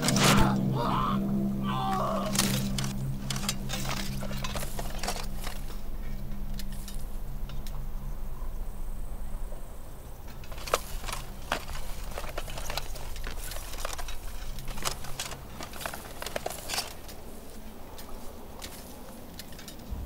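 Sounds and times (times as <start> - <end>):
steady low hum: 0.0 - 20.0
sharp clicks and crackles: 1.9 - 8.0, 10.2 - 20.0.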